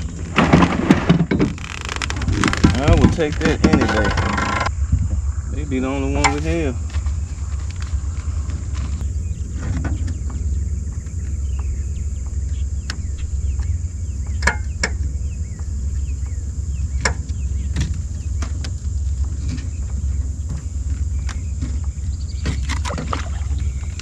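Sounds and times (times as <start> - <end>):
steady low rumble: 0.0 - 24.0
gear knocking and clicking: 0.4 - 4.7.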